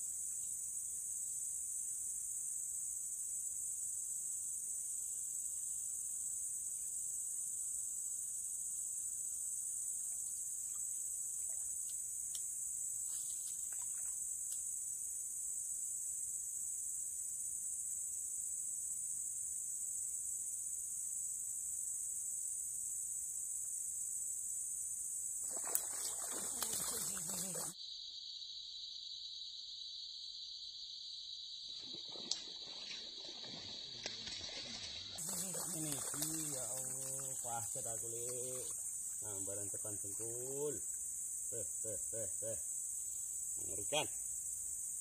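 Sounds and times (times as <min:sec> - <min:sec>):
insect chorus drone: 0:00.0 - 0:45.0
fish thrashing and splashing in water: 0:25.4 - 0:27.7, 0:34.3 - 0:37.4.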